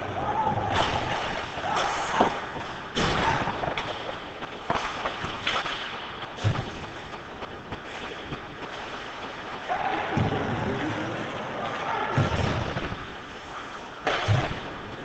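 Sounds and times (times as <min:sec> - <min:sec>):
skates scraping ice: 0:00.0 - 0:15.0
sharp clacks and thuds: 0:02.1 - 0:10.4.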